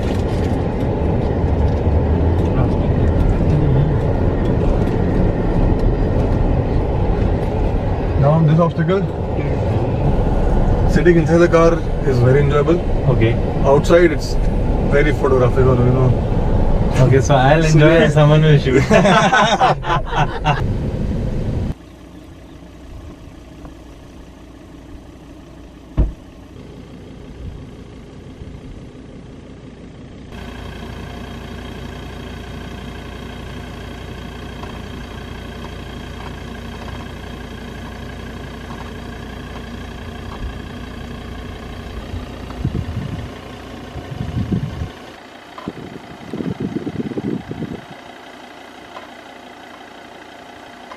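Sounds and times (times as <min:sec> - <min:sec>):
diesel engine running: 0:00.0 - 0:50.9.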